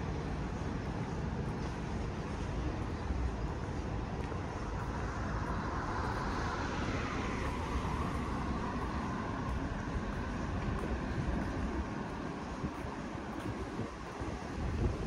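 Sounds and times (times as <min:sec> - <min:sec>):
road traffic passing: 0:00.0 - 0:15.0
vehicle passing by: 0:05.1 - 0:10.8.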